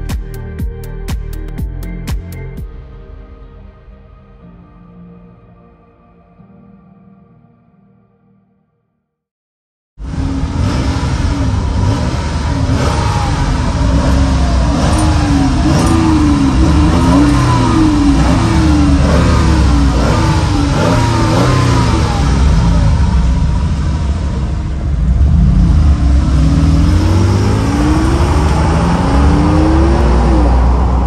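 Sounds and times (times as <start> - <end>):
car engine idling: 10.0 - 31.0
car engine revving: 10.0 - 31.0.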